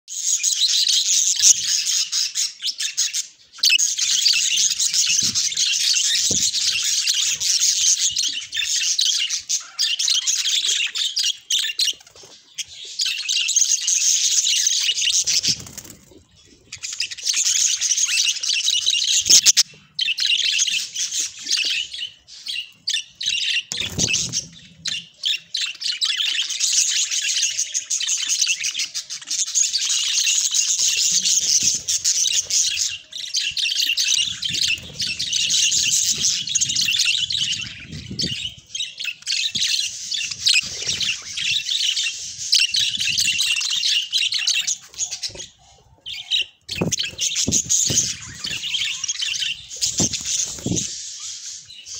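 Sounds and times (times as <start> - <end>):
budgerigars chattering: 0.3 - 51.9.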